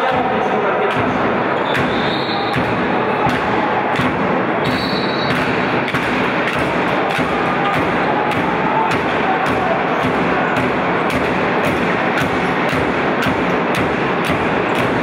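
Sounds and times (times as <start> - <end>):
crowd noise in sports hall: 0.0 - 15.0
handball bouncing on court floor: 0.0 - 15.0.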